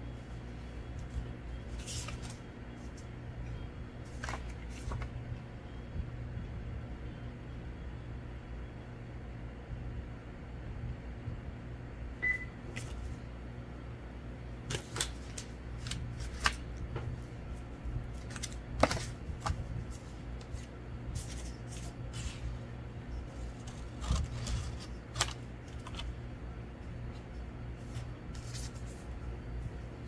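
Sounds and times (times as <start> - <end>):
low steady hum: 0.0 - 30.0
paper rustling: 1.0 - 3.1, 4.0 - 5.2, 14.7 - 22.6, 23.2 - 26.2, 27.1 - 29.3.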